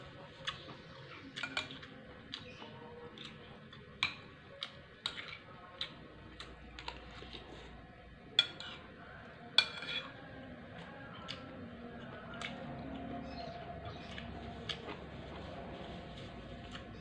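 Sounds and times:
cutlery clinking on a plate: 8.4 - 8.8, 9.6 - 10.2.

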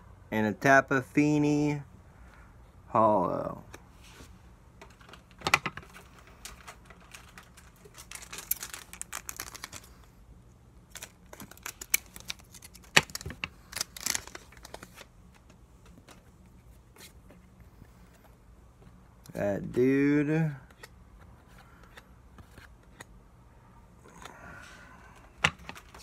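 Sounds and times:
cards flipped clicking and snapping: 7.2 - 9.9, 10.9 - 16.2, 20.7 - 23.1.

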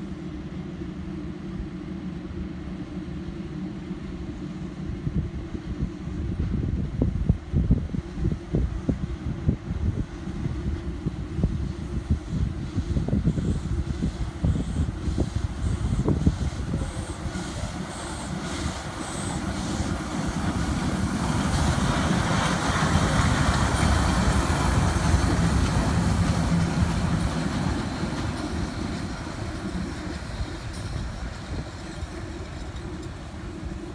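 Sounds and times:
steam locomotive rumble: 0.0 - 33.9
steam hiss: 10.1 - 33.9.

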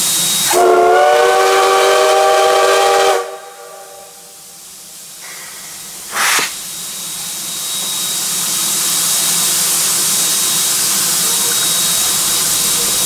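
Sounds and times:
steam locomotive whistle: 0.0 - 4.5
sharp blast of steam: 0.0 - 13.0
steam hissing: 0.0 - 13.0.

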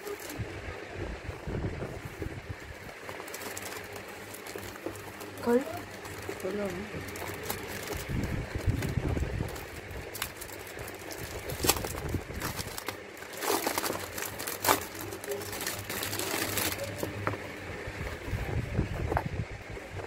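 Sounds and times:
plastic film crinkling: 0.0 - 0.5, 2.2 - 17.4.

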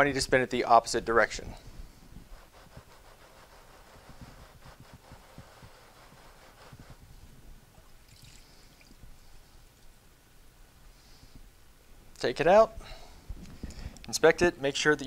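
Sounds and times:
scouring pad scrubbing blade: 2.4 - 7.0
liquid splashing and dripping: 7.8 - 9.1.

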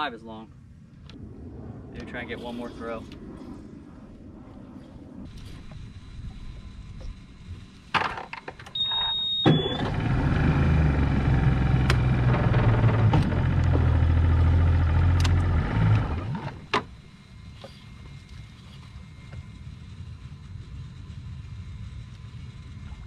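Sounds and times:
outboard motor running: 8.8 - 16.8.

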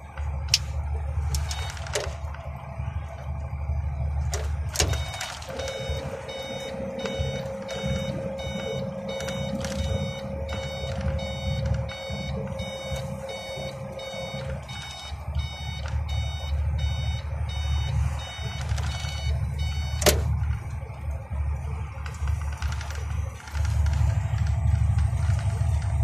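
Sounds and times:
truck diesel engine running: 0.0 - 26.0
repeating electronic beep: 4.5 - 20.4.

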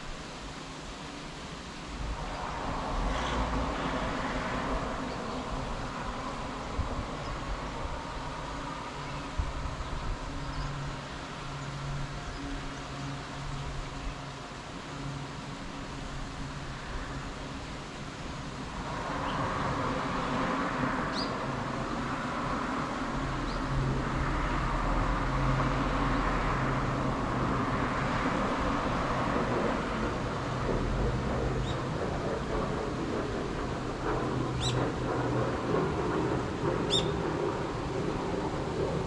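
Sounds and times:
road traffic hum: 0.0 - 39.0
low engine drone: 2.0 - 39.0.

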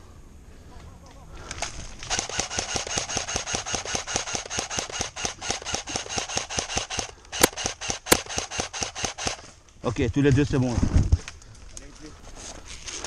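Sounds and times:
airsoft rifle firing full-auto: 2.0 - 9.5.

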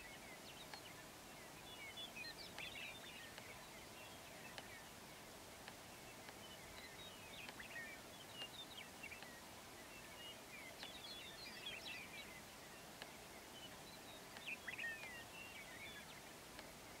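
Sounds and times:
bird chirps and twitters: 0.0 - 4.9, 6.1 - 16.3
steady outdoor hiss: 0.0 - 17.0.

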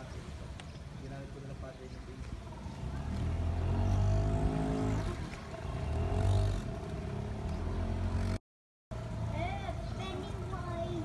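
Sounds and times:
boat motor humming: 2.4 - 8.4.

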